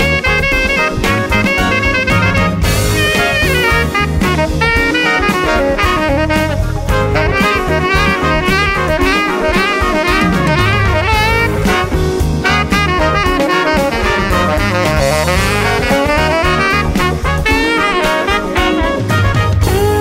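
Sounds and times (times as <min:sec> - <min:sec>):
bass: 0:00.0 - 0:20.0
drum kit: 0:00.0 - 0:20.0
saxophone melody: 0:00.0 - 0:20.0.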